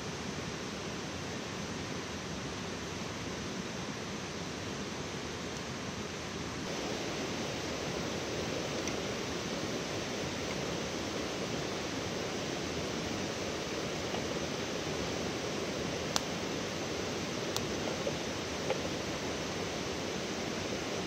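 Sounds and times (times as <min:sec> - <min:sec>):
steady rushing noise: 0:06.5 - 0:21.0.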